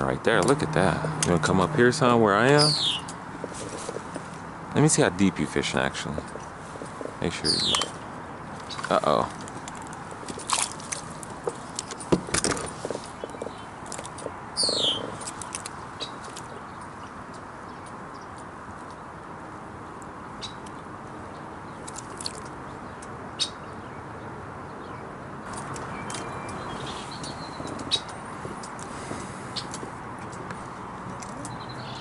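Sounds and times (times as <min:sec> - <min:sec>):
outdoor background hiss: 0:00.0 - 0:32.0
fishing tackle clicks and knocks: 0:08.6 - 0:19.0, 0:21.8 - 0:23.2, 0:25.4 - 0:28.9.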